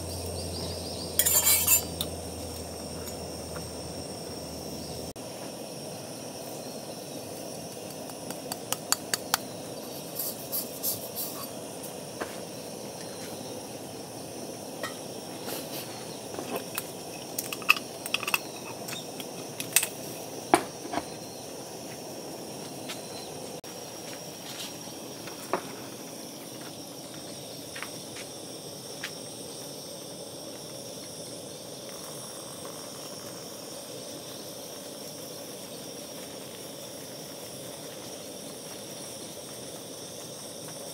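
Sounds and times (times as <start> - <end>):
background hiss: 0.1 - 40.9
coffee grinder taps and metal clinks: 16.6 - 20.0.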